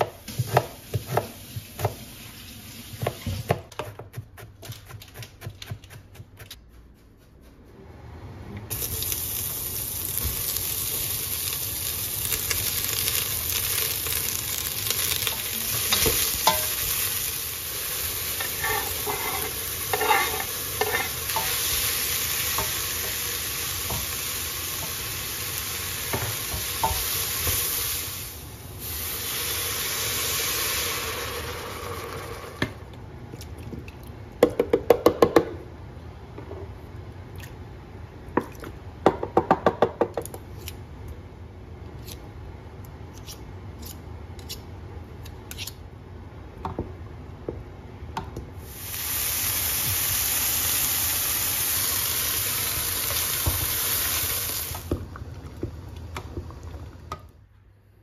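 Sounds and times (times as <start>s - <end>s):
vegetables sizzling in a pot: 0.0s - 3.7s, 8.7s - 32.8s, 48.6s - 57.1s.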